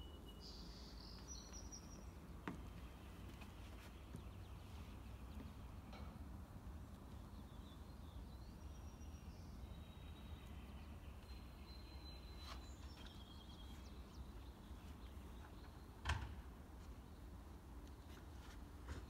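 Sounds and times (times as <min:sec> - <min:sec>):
birds singing: 0:00.0 - 0:16.3.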